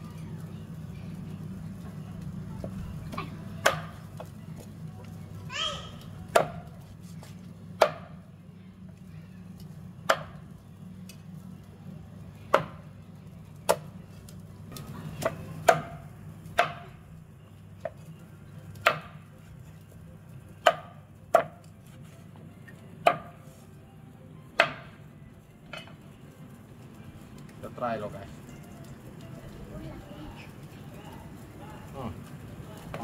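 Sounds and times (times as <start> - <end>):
cleaver chopping on a board: 7.8 - 8.1, 16.6 - 16.8, 18.8 - 19.1, 20.6 - 21.6, 23.0 - 23.4.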